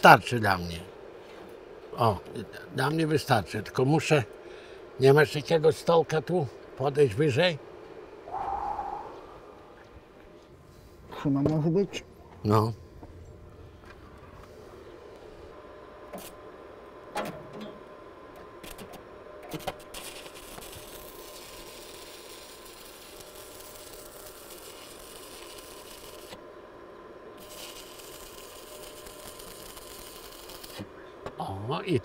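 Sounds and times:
arc welding crackle: 0:16.0 - 0:16.4, 0:18.6 - 0:26.5, 0:27.3 - 0:32.0.

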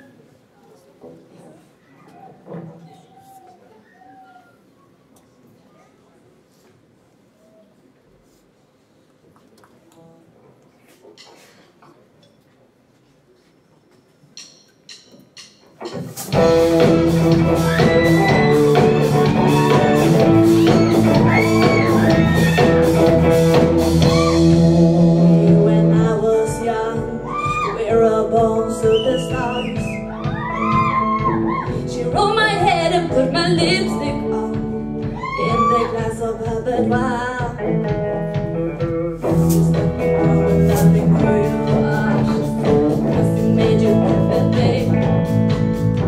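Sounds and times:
live rock band: 0:15.8 - 0:46.0.

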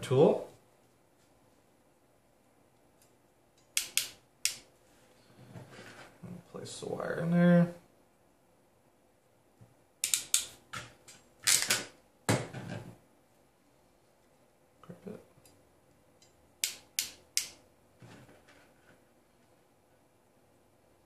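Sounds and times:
crimp tool clicking: 0:03.6 - 0:04.6, 0:10.0 - 0:10.5, 0:16.2 - 0:17.6.

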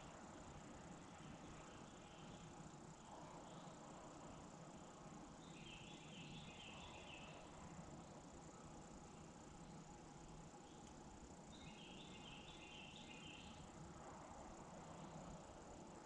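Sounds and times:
faint high chirps: 0:01.2 - 0:07.7, 0:10.6 - 0:13.7.

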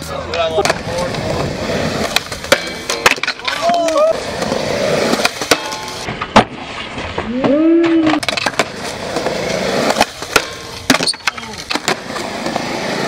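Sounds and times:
skateboard wheels rolling on concrete: 0:00.0 - 0:13.0
skateboard clacking: 0:00.2 - 0:06.6, 0:07.2 - 0:13.0
person shouting: 0:03.4 - 0:04.2, 0:07.3 - 0:08.2.

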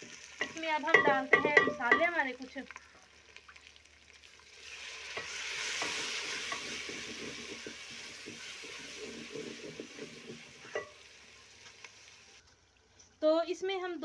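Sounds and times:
food frying in oil: 0:00.0 - 0:13.2
metal spoon scraping a pot: 0:05.1 - 0:11.0.

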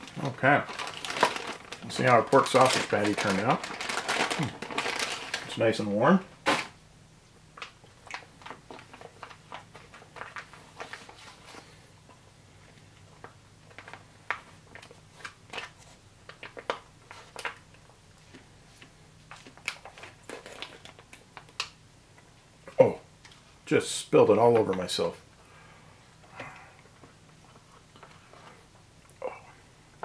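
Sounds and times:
food pouch crinkling and crackling: 0:00.0 - 0:05.8, 0:07.5 - 0:11.7, 0:13.2 - 0:18.0, 0:18.8 - 0:21.8.

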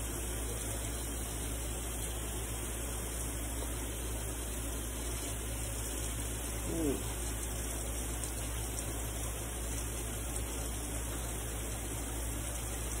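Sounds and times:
running water hissing: 0:00.0 - 0:13.0.

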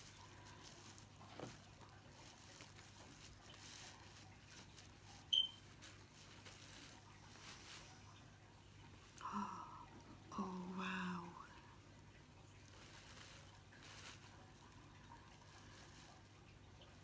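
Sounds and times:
blanket and bubble wrap rustling: 0:00.0 - 0:09.4, 0:12.4 - 0:17.0
low steady hum: 0:00.0 - 0:17.0
short high-pitched chirp: 0:05.3 - 0:05.6.

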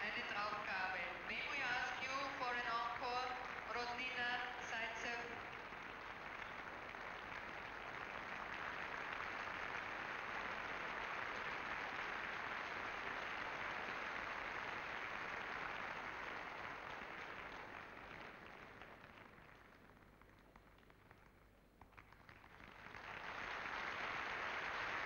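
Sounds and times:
audience applauding: 0:00.0 - 0:25.0.

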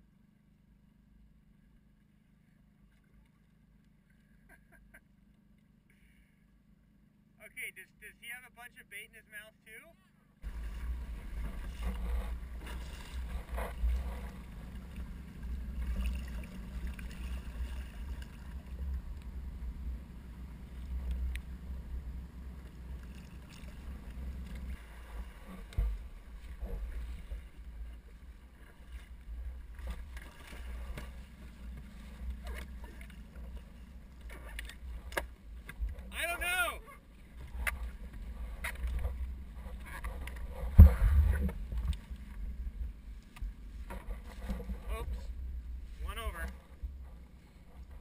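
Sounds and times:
wind: 0:00.0 - 0:48.0
water splashes: 0:10.4 - 0:47.0
water against boat hull: 0:10.4 - 0:48.0
knocks on boat: 0:40.1 - 0:42.0
loud thump: 0:40.7 - 0:41.6.

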